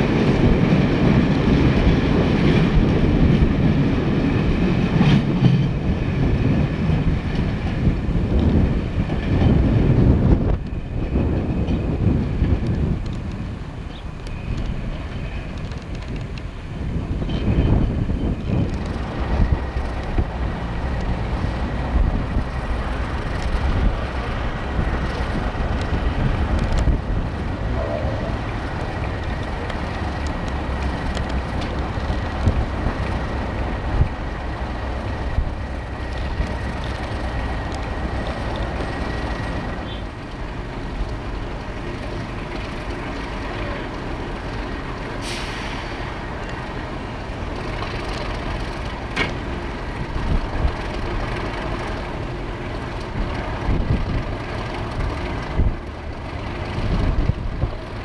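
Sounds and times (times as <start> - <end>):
diesel locomotive engine running: 0.0 - 58.0
air hiss: 45.2 - 46.2.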